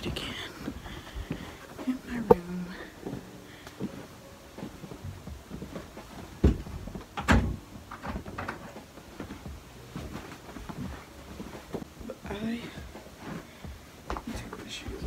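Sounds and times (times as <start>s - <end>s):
wooden door thumping shut: 6.4s - 8.6s.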